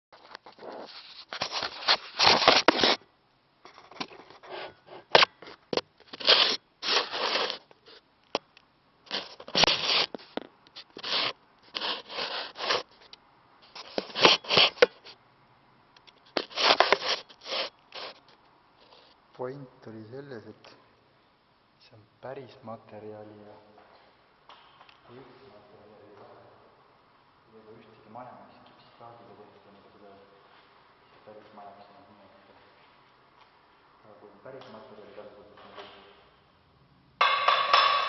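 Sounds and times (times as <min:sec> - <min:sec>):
scraping and rubbing: 0:00.2 - 0:03.0, 0:03.7 - 0:08.0, 0:09.1 - 0:15.2, 0:16.3 - 0:19.2.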